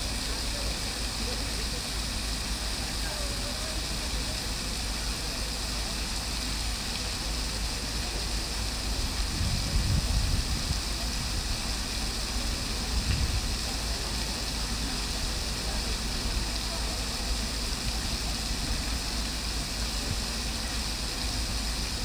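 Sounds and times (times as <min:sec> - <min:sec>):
fountain water splashing: 0:00.0 - 0:22.0.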